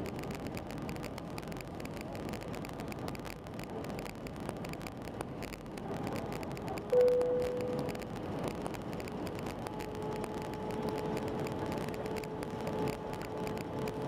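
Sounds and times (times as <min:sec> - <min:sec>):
airplane cabin airflow and engines: 0:00.0 - 0:14.0
clear cabin tone: 0:06.9 - 0:08.2.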